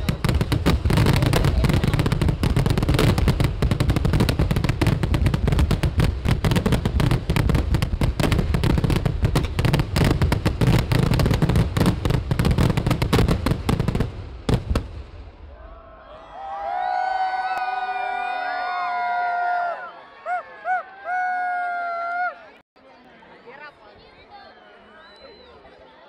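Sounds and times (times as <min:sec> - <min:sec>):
rapid firecracker explosions: 0:00.0 - 0:15.4.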